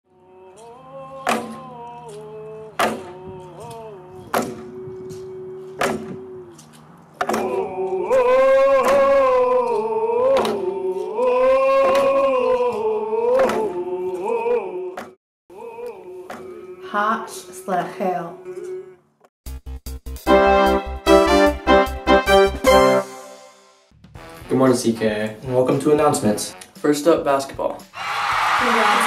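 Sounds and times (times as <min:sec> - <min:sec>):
group singing a chant: 0:00.1 - 0:06.5, 0:07.2 - 0:17.0.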